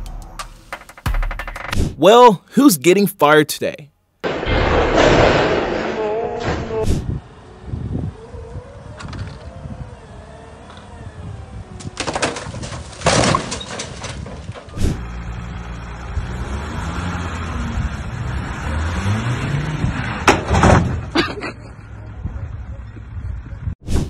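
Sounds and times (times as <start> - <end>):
rushing clattering noise: 4.2 - 7.0
loud bangs: 4.2 - 7.2
van engine revving: 4.6 - 21.2.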